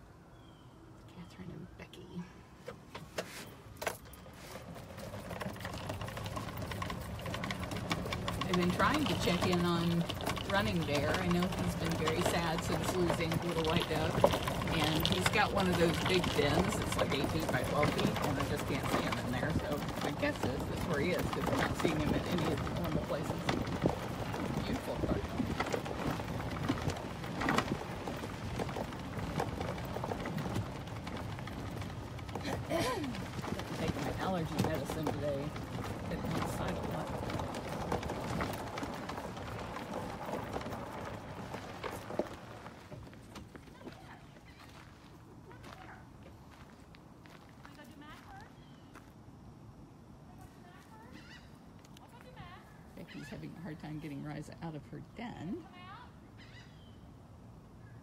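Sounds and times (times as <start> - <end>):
footsteps outdoors: 2.6 - 58.0
rapid mechanical rattling: 4.6 - 43.1.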